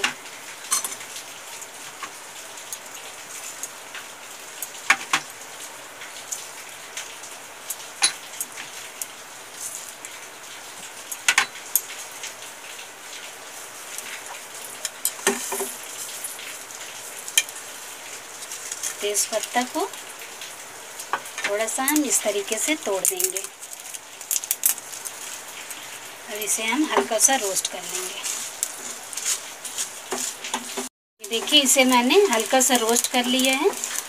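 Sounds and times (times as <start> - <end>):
seeds pouring into metal pan: 31.3 - 34.0.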